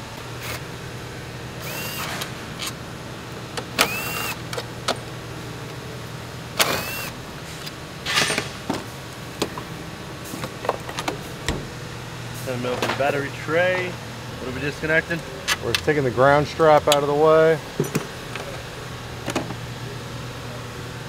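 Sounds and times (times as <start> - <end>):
electric ratchet whine: 1.6 - 2.3, 3.8 - 4.4, 6.6 - 7.2.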